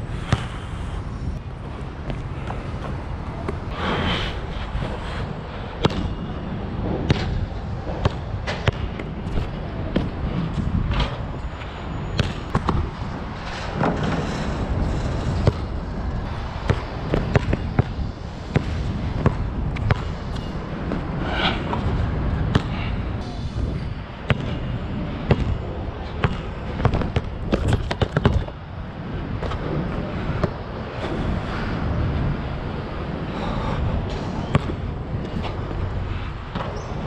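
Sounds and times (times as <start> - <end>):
basketball bouncing on court: 5.8 - 6.2, 8.0 - 10.2, 12.2 - 12.9, 16.6 - 20.4, 22.5 - 22.8, 24.2 - 28.6, 34.5 - 35.5.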